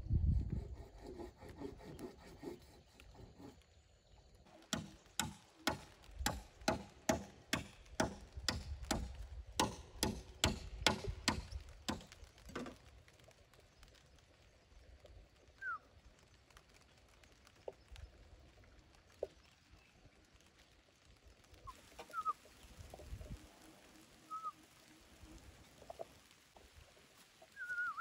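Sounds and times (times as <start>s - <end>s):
hand tool rasping bamboo: 0.5s - 3.6s.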